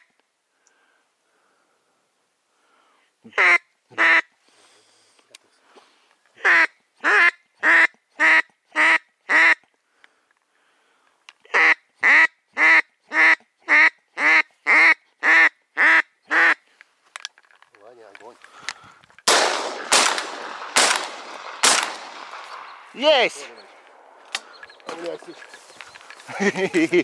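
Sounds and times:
duck quacking: 3.3 - 4.3, 6.4 - 9.6, 11.4 - 16.6.

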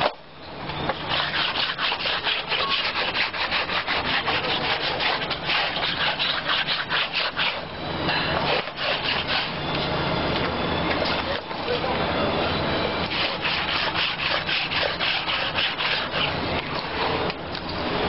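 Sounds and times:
scrubbing wet rubber tube: 1.1 - 7.6, 8.4 - 9.5, 13.0 - 16.4.

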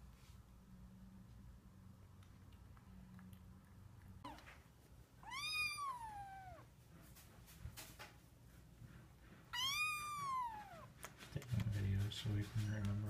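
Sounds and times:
kitten mewing: 5.2 - 6.7, 9.5 - 11.0.

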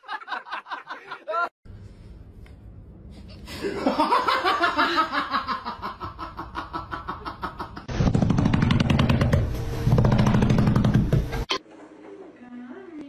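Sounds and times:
low rumbling with rapid clattering: 7.8 - 11.5.

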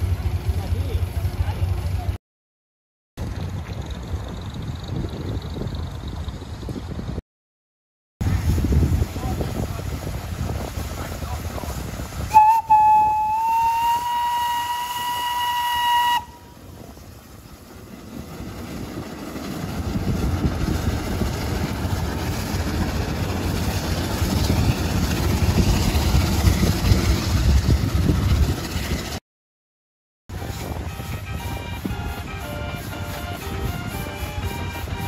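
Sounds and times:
steam whistle blowing: 12.3 - 16.6, 30.4 - 35.0.

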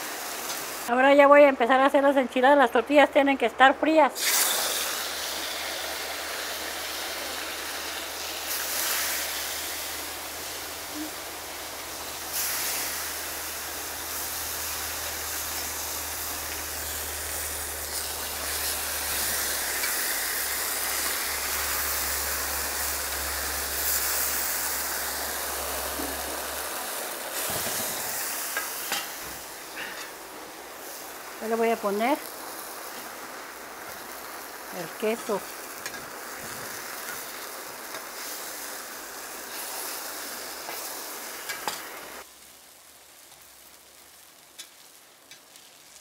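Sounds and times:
tortillas sizzling in oil: 0.0 - 46.0.

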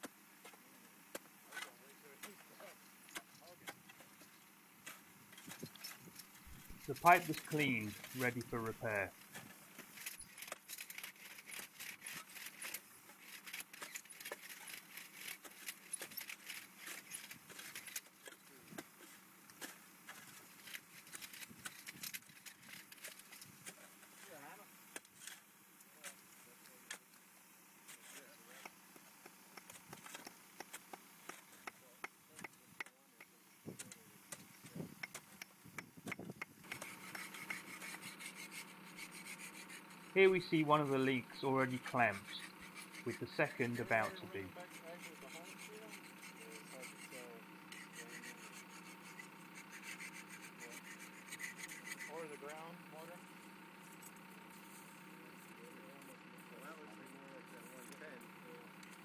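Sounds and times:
wire brush scrubbing metal pipe: 36.6 - 41.0, 41.6 - 52.5.

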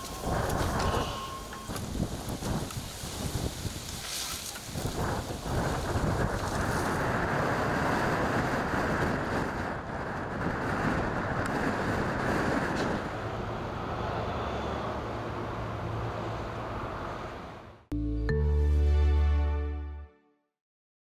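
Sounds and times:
wind buffeting microphone: 0.0 - 15.6.

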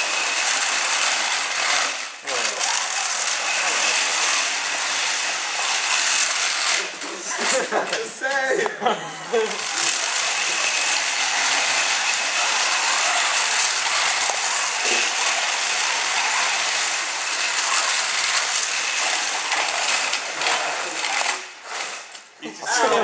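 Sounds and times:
robot motors rattling: 9.3 - 22.3.

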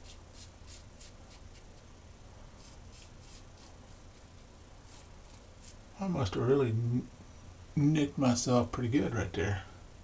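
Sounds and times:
razor scraping stubble: 0.0 - 1.9, 2.6 - 5.8.

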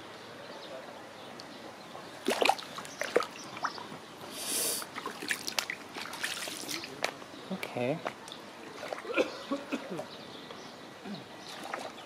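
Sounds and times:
shallow water splashing: 2.2 - 3.9, 4.9 - 7.0, 8.6 - 9.4, 11.4 - 12.0.

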